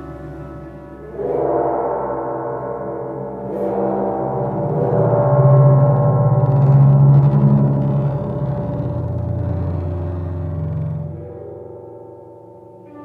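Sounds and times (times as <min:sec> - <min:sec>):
chamber music for flutes and piano: 0:00.0 - 0:07.2, 0:10.1 - 0:13.0
gong-like metal percussion stroke: 0:00.0 - 0:07.2
low held tone: 0:00.0 - 0:13.0.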